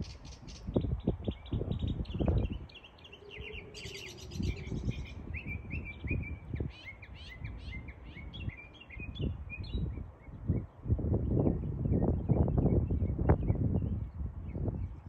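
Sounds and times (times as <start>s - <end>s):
songbirds chirping and trilling: 0.0s - 15.0s
wind rumbling on microphone: 0.0s - 15.0s.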